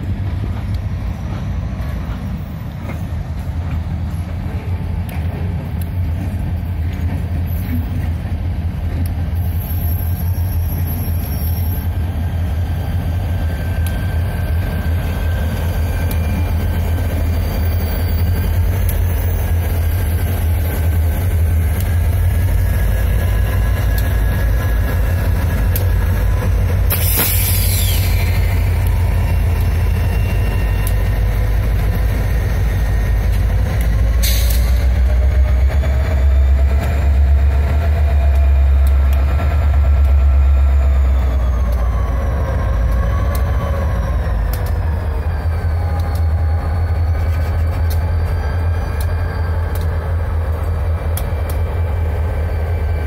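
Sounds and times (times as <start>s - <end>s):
freight train low rumble: 0.0s - 53.0s
short hiss: 26.9s - 28.2s.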